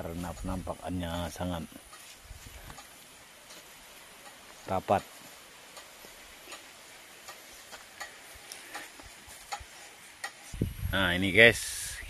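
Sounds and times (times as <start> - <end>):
light clicks and ticks: 1.8 - 10.5.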